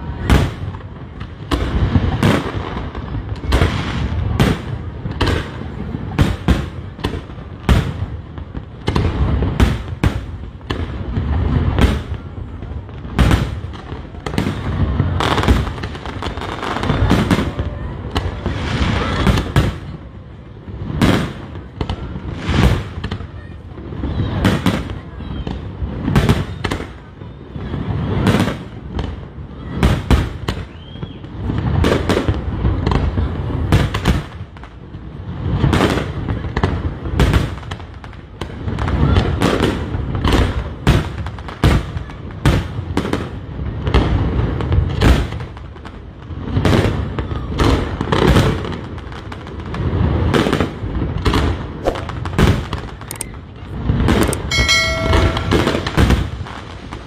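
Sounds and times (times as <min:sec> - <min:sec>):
firework bangs: 0:00.0 - 0:57.0.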